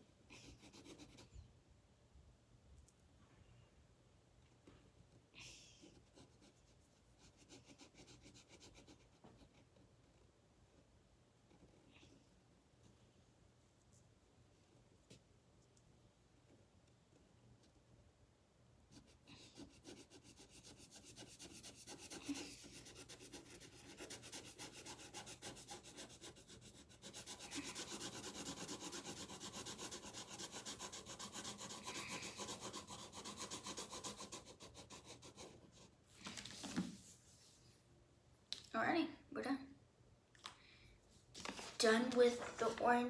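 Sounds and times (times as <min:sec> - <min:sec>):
marker scribbling on paper: 0:19.0 - 0:35.9.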